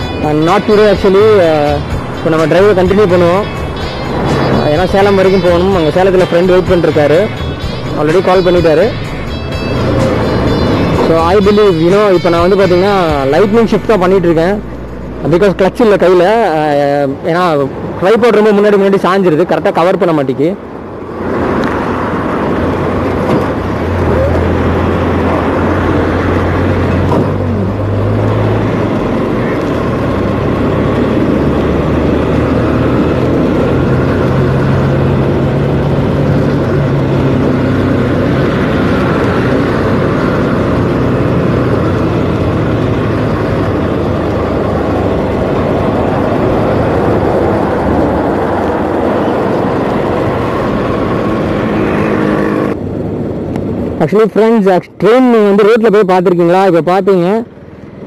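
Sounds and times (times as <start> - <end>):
wind rushing over microphone: 0.0 - 7.2, 20.5 - 55.6.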